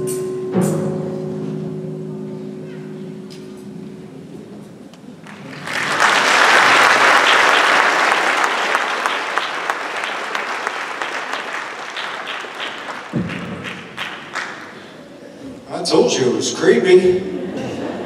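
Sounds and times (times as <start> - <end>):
audience applauding: 5.2 - 15.1.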